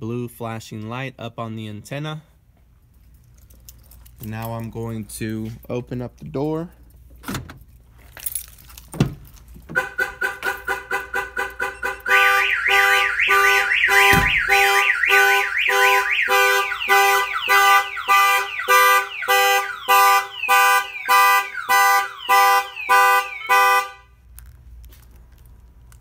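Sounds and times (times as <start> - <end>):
car alarm siren: 9.7 - 24.1
thump: 14.1 - 14.4.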